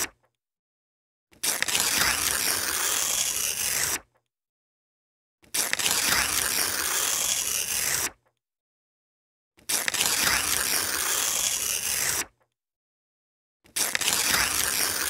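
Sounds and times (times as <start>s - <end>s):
paper tearing: 1.3s - 4.1s, 5.4s - 8.2s, 9.6s - 12.4s, 13.7s - 15.0s.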